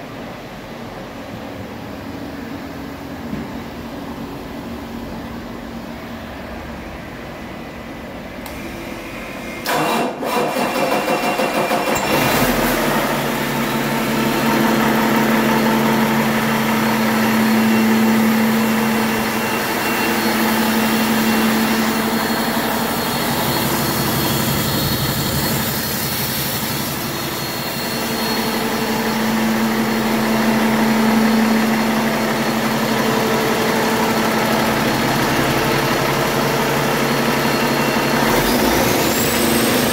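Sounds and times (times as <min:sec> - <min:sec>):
diesel engine starter cranking: 0:09.6 - 0:13.6
diesel engine idling: 0:11.4 - 0:39.9.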